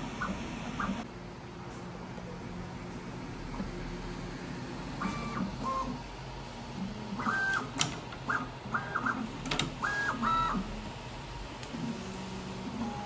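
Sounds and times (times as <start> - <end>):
sharp printer clicks: 7.2 - 10.6.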